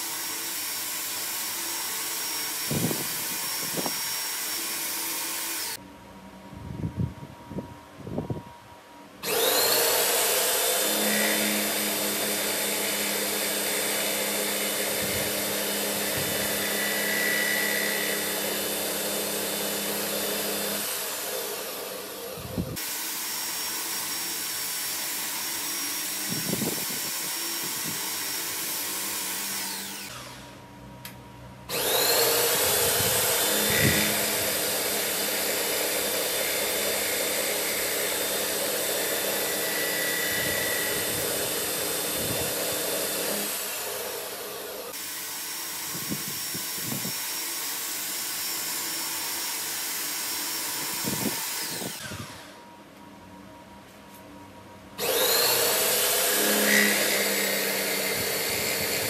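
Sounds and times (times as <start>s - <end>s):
spindle motor whining: 9.2s - 24.8s, 25.6s - 30.6s, 31.7s - 47.6s, 50.0s - 52.7s, 55.0s - 59.0s.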